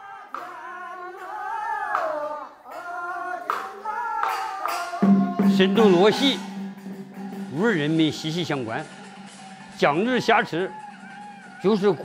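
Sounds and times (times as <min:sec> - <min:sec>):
man chanting in held notes: 0:00.0 - 0:06.5
sharp percussion strikes: 0:04.2 - 0:12.0.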